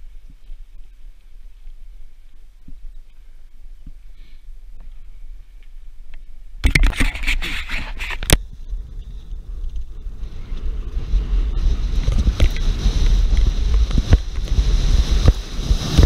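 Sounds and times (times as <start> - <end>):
wind rumbling on microphone: 0.0 - 16.0
bike rattling: 6.6 - 16.0.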